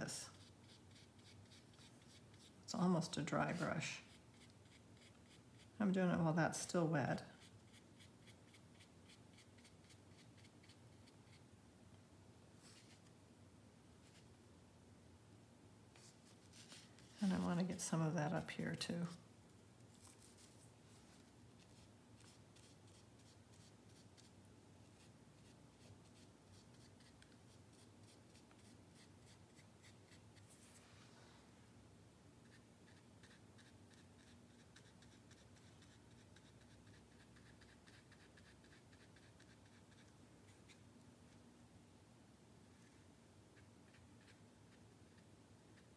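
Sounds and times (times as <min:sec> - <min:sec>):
paintbrush scratching on paper: 0:00.3 - 0:06.3, 0:07.2 - 0:11.4, 0:19.9 - 0:24.3, 0:24.9 - 0:30.8, 0:32.4 - 0:40.8, 0:43.6 - 0:45.9.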